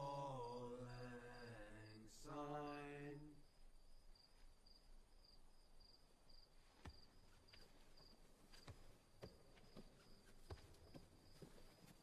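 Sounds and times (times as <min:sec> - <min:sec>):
men singing: 0:00.0 - 0:03.4
crickets chirping: 0:00.0 - 0:12.0.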